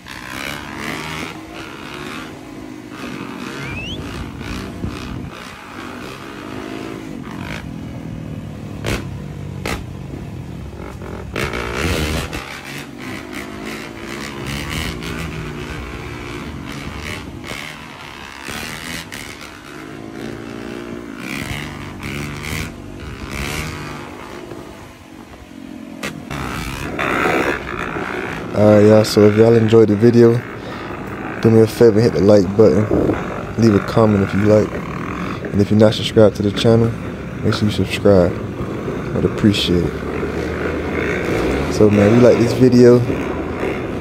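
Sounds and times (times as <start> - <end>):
dirt bike engines revving: 0.0 - 44.0.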